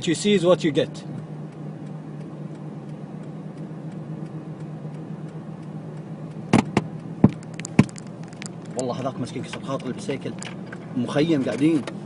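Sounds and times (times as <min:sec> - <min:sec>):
car interior driving drone: 0:00.0 - 0:12.0
sharp clicks: 0:01.5 - 0:10.9.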